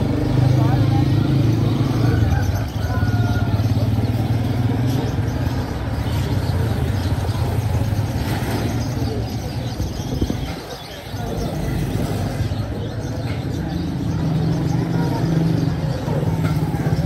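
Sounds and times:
faint voices: 0.0s - 17.0s
street noise: 0.0s - 17.0s.

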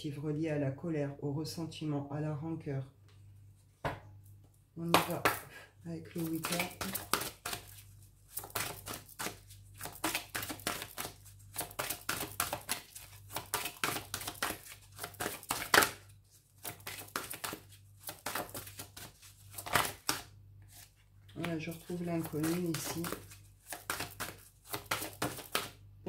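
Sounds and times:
cards being shuffled: 6.2s - 25.8s.

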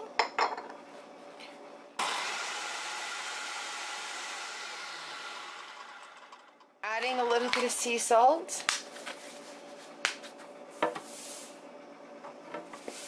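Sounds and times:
food processor motor running: 2.0s - 7.6s.

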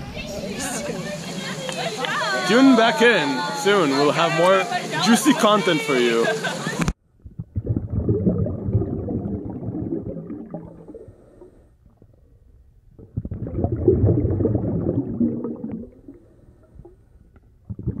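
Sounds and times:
muffled underwater churning water: 7.3s - 12.4s, 13.0s - 18.0s.

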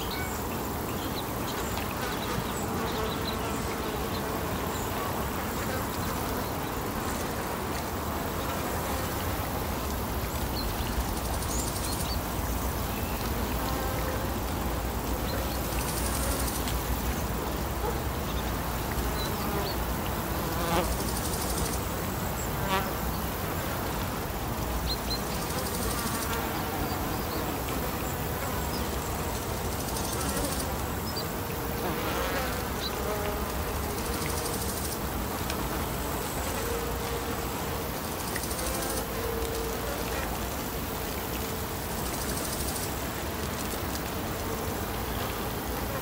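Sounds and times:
insects buzzing: 0.0s - 46.0s
outdoor background hiss: 0.0s - 46.0s.

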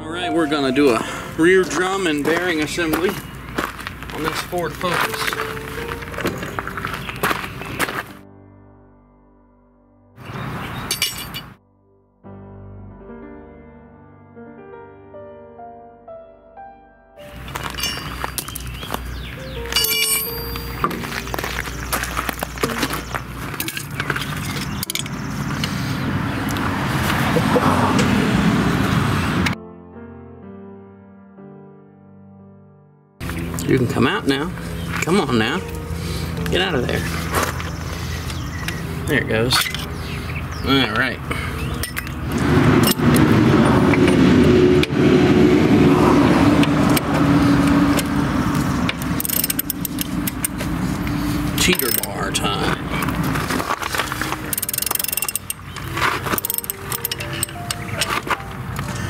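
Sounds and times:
metal socket clinks: 10.9s - 11.5s, 19.8s - 20.8s, 49.2s - 50.6s, 54.5s - 55.6s, 56.3s - 58.1s
pry tool clinking on metal: 10.9s - 11.5s, 17.7s - 18.7s, 19.6s - 21.0s, 23.6s - 25.2s, 39.5s - 39.9s, 41.7s - 42.2s, 48.9s - 50.6s, 51.6s - 52.6s, 54.5s - 58.3s
vehicle engine running: 33.2s - 59.0s.

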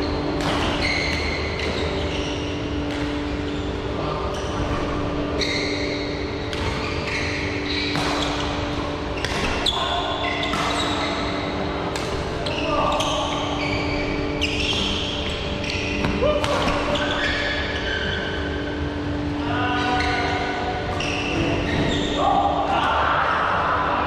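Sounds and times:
steady hall hum: 0.0s - 24.0s
rackets striking shuttlecock: 0.4s - 1.4s, 7.8s - 8.6s, 10.3s - 11.1s, 11.9s - 12.2s
shoes squeaking on floor: 0.6s - 11.5s, 12.4s - 18.8s, 19.8s - 22.2s.

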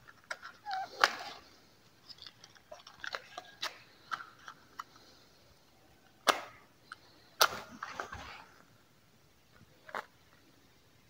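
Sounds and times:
matchbox clicks and rustles: 0.0s - 5.2s.

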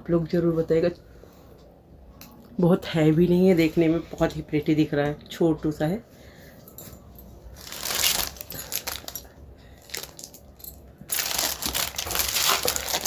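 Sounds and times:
packaging crinkling: 7.5s - 10.5s, 11.1s - 13.0s.

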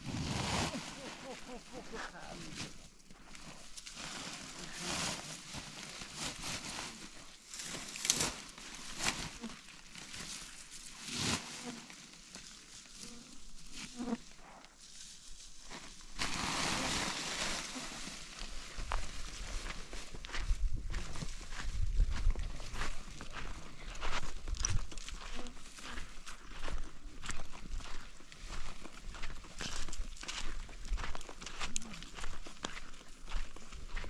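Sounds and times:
dry straw crackling and rustling: 0.0s - 13.0s, 14.8s - 20.4s.

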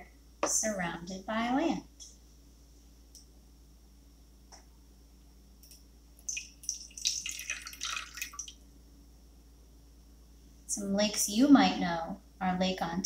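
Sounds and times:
water pouring and splashing: 6.3s - 8.5s.

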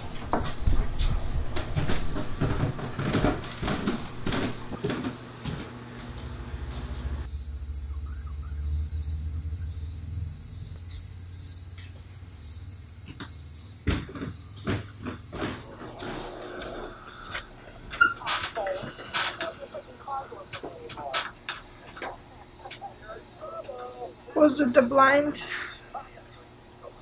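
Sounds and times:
scattered clicks and knocks: 0.0s - 5.7s, 13.0s - 22.9s.

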